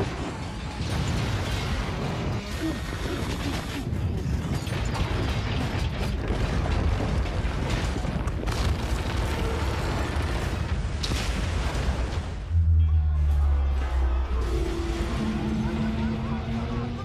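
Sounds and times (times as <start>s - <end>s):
rumble of crashing debris: 0.0s - 12.6s
sharp cracks and impacts: 0.0s - 12.6s.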